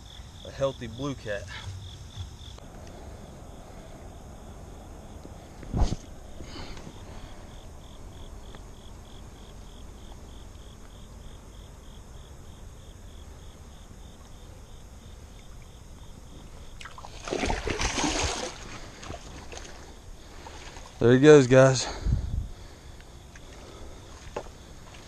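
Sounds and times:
low steady background: 0.0s - 25.0s
fish splashing in water: 16.8s - 21.0s.

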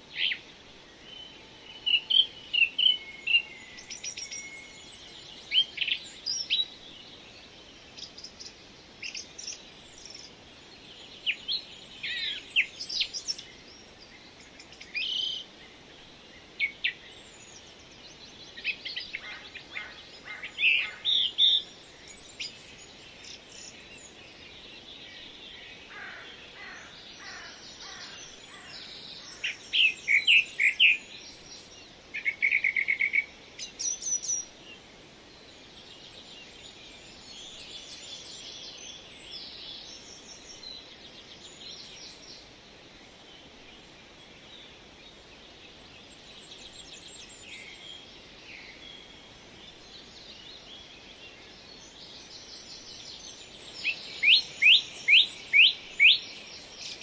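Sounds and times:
soft steady hiss: 0.0s - 57.0s
birds chirping and singing: 0.1s - 10.4s, 16.4s - 34.6s, 46.0s - 57.0s.

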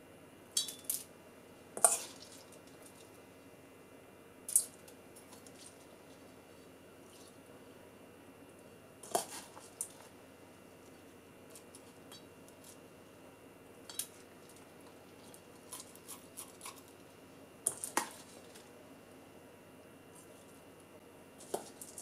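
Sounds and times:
metal spoon clinking on steel bowl: 0.6s - 1.0s.

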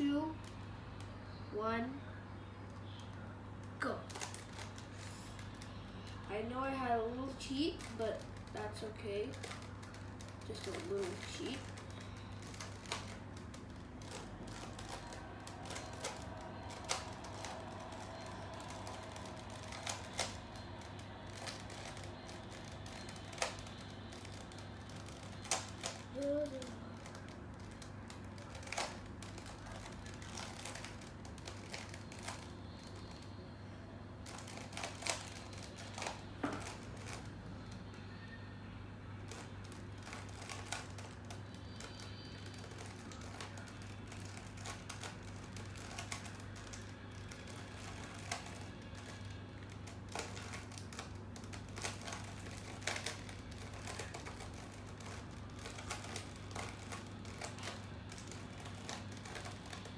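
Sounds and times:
steady low hum: 0.0s - 59.9s
puzzle cube plastic clicking: 9.2s - 33.4s, 39.2s - 59.9s.

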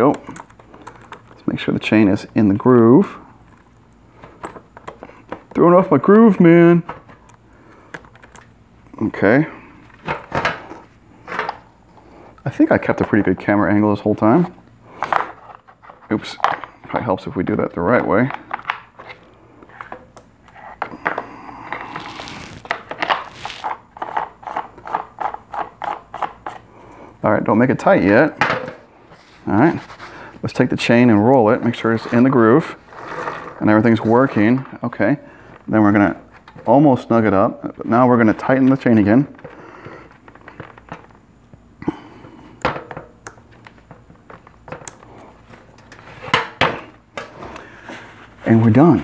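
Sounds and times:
plastic cover scraping and rattling: 21.8s - 24.4s, 31.7s - 34.6s.

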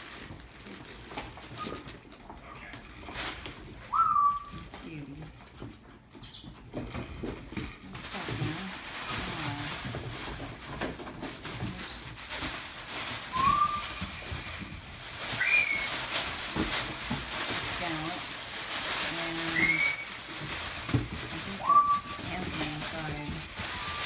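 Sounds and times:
puppies scuffling and rustling: 0.0s - 24.0s
puppy squeaks or whines: 1.5s - 1.9s, 3.9s - 4.6s, 6.2s - 6.9s, 23.7s - 24.0s.

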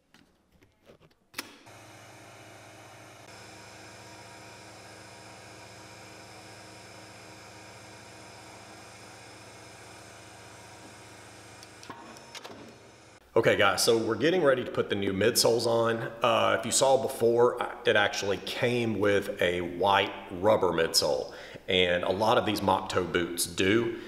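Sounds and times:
press motor humming: 1.6s - 13.3s.

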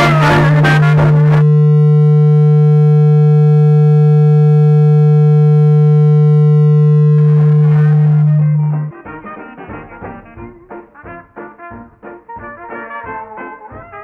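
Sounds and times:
low electronic buzzing tone: 0.0s - 8.9s.

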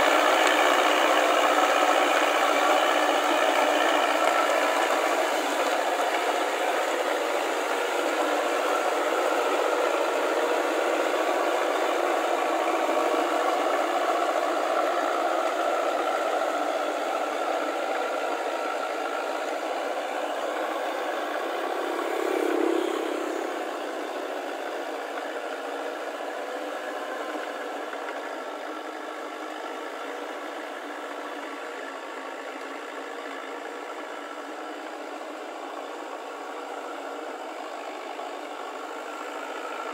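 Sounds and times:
tracks and tiller clattering: 0.0s - 22.5s
tractor engine under load: 0.0s - 39.9s.

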